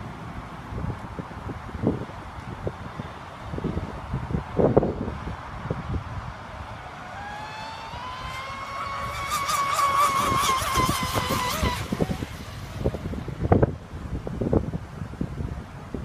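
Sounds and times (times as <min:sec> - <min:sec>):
wind rumble on microphone: 0:00.0 - 0:16.0
high-pitched motor whine: 0:06.4 - 0:13.8.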